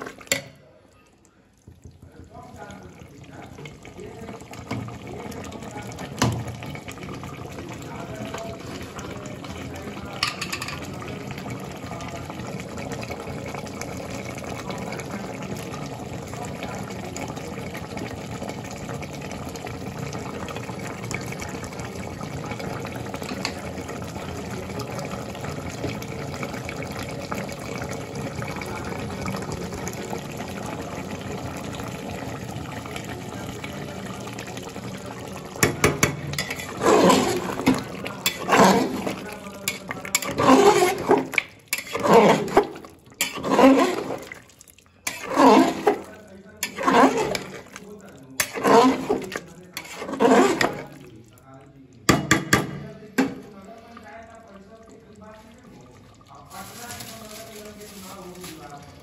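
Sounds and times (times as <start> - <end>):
curry bubbling and hissing: 1.2 - 52.1, 52.9 - 59.0
ladle scraping against pot: 35.6 - 44.4, 45.0 - 47.8, 48.4 - 51.0.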